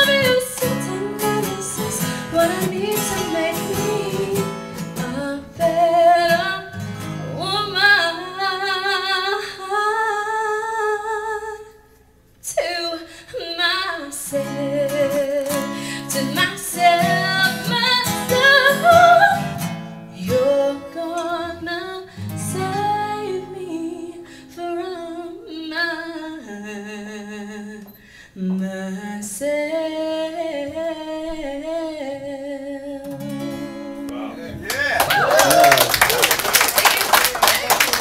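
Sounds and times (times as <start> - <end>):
strummed acoustic guitars: 0.0 - 8.3, 14.1 - 24.7, 33.0 - 35.0
woman singing with vibrato: 0.0 - 34.1.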